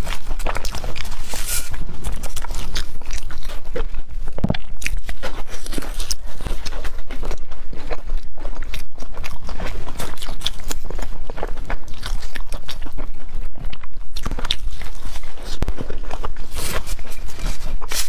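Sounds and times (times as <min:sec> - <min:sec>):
chewing and biting bread: 0:00.0 - 0:18.0.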